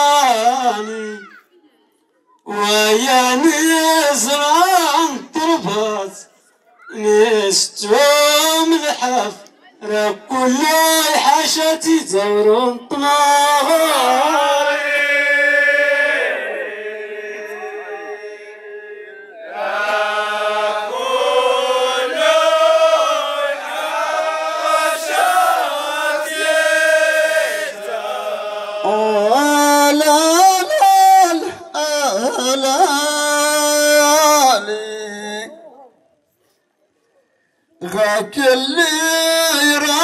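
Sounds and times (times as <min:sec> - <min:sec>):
men's chorus chanting: 0:13.3 - 0:35.3.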